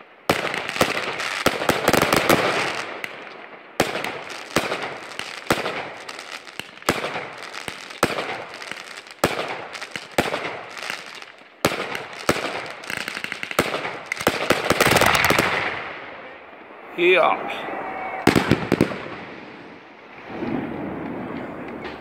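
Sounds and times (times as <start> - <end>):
firework crackling: 0.0 - 17.6, 18.2 - 22.0
firework shells bursting with bangs: 0.3 - 16.1, 18.3 - 19.8.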